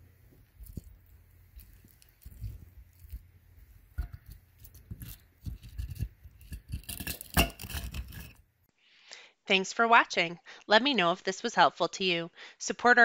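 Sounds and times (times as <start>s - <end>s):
chicken skin crunching: 0.4s - 8.4s.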